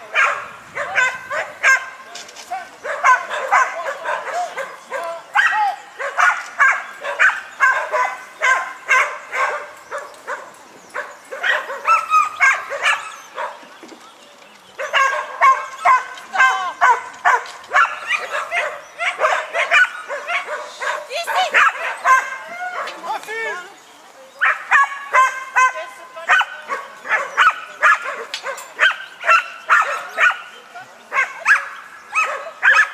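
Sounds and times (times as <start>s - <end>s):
dog yapping: 0.2s - 1.9s, 2.5s - 13.6s, 14.8s - 23.0s, 31.1s - 32.9s.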